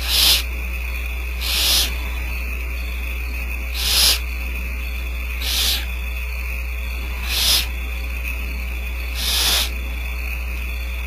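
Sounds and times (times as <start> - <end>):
owlets hissing: 0.0 - 6.2, 6.9 - 10.2
low hum: 0.0 - 11.0.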